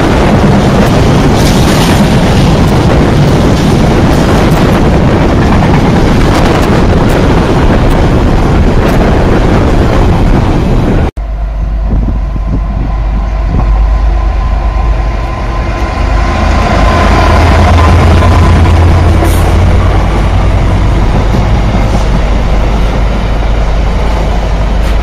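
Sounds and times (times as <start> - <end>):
diesel locomotive engine drone: 0.0 - 25.0
freight train wheels rumbling: 0.0 - 25.0.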